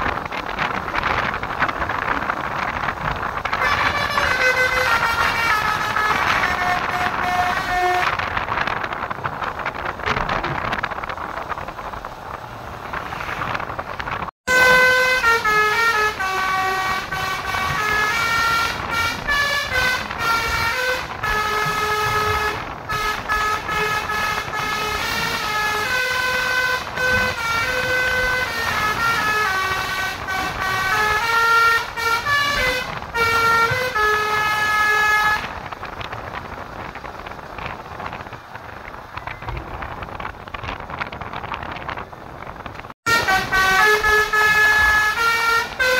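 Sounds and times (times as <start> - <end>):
road noise: 0.0 - 45.9
musical air horn melody: 3.6 - 8.2, 14.4 - 35.6, 43.1 - 45.9.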